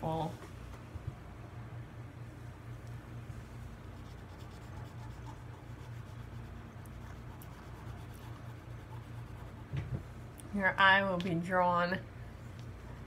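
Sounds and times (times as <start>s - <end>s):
steady low hum: 0.0s - 13.0s
pencil scratching on paper: 4.0s - 9.7s.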